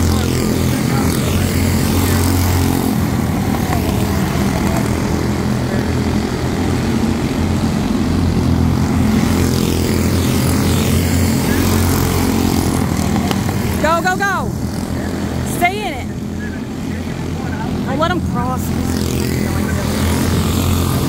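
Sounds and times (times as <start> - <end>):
small race car engines buzzing: 0.0 - 21.0.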